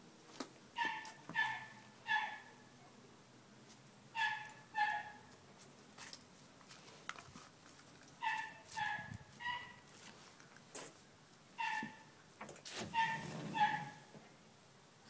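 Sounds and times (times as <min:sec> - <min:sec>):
small dog yipping: 0:00.8 - 0:02.5, 0:04.2 - 0:05.2, 0:08.2 - 0:09.8, 0:11.6 - 0:12.1, 0:13.0 - 0:14.0.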